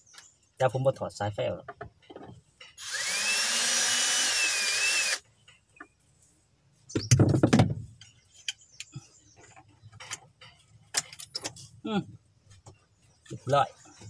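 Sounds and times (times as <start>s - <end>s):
cordless drill whining: 2.8s - 5.2s.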